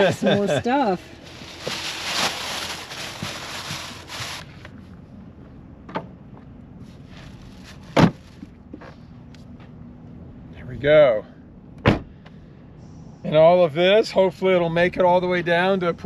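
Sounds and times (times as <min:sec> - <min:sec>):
plastic bags rustling: 0:00.0 - 0:04.6
thump in car cargo space: 0:05.9 - 0:06.1, 0:07.9 - 0:08.5, 0:11.8 - 0:12.2.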